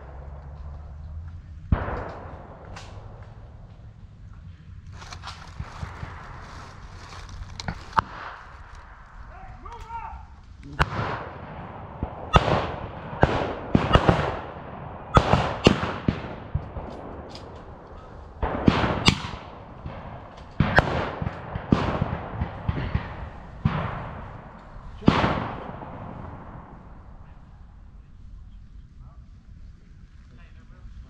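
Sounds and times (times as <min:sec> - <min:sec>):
blank rifle shots echoing: 0:01.6 - 0:03.9, 0:04.9 - 0:10.0, 0:10.8 - 0:27.5.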